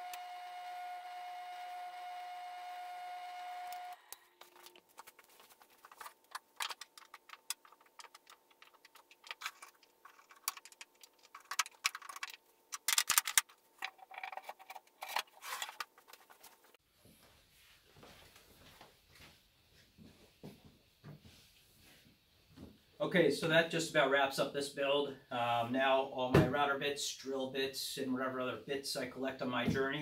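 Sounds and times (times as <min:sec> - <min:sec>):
drill press motor hum: 0:00.0 - 0:04.7
metal bits clicking on wood: 0:06.2 - 0:15.8.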